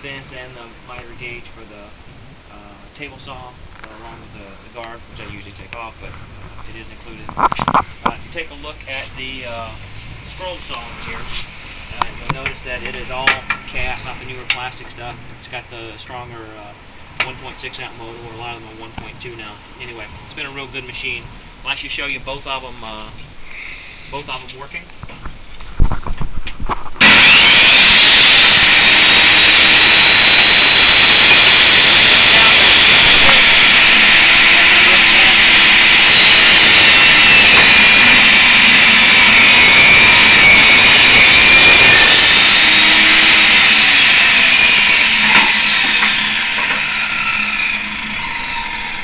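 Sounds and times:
table saw ripping board: 41.5 - 47.6.

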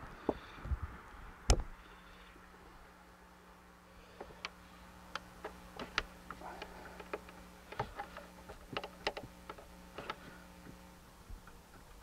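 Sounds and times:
plastic tubing clicking against engine: 4.2 - 12.0.

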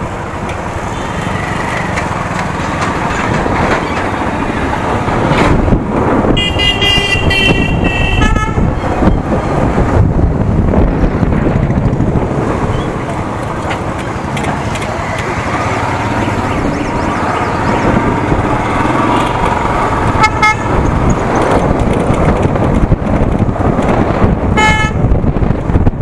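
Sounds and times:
motorcycle engine: 0.0 - 25.9
vehicle horn beeping: 0.9 - 1.4, 6.4 - 8.7, 20.2 - 20.7, 24.6 - 25.0
wind on microphone: 2.8 - 26.0.

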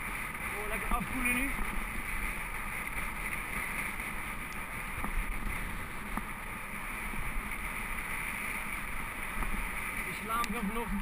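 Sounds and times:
bike tyres on gravel: 0.0 - 11.0.

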